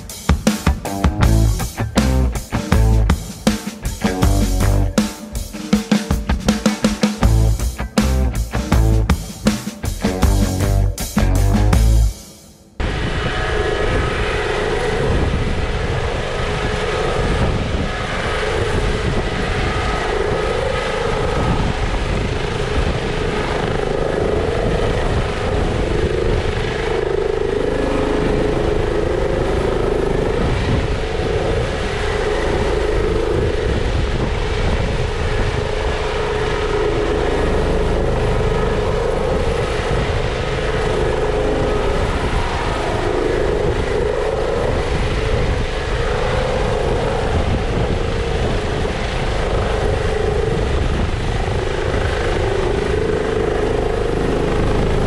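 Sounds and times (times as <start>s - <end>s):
helicopter hovering: 0.0s - 55.0s.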